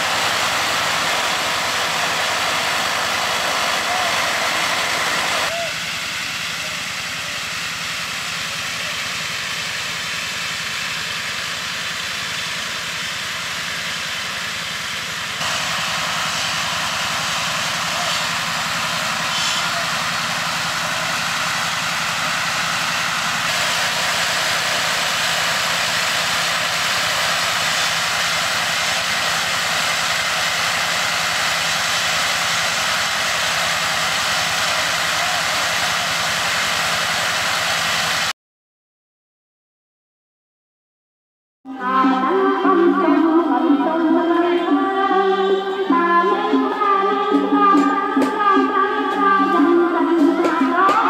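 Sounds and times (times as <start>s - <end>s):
machine drone: 0.0s - 38.3s.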